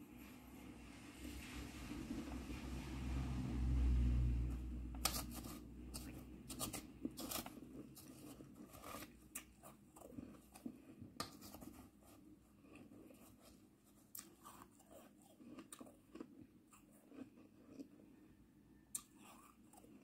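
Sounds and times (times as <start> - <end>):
low muffled rumble: 0.1 - 7.1
metal spoon scraping shaved ice: 5.0 - 9.2.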